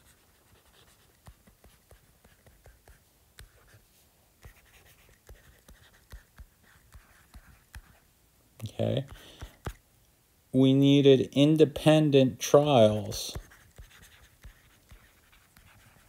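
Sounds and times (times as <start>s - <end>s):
stylus scratching on screen: 0.0s - 3.8s, 4.4s - 8.0s, 12.6s - 16.0s.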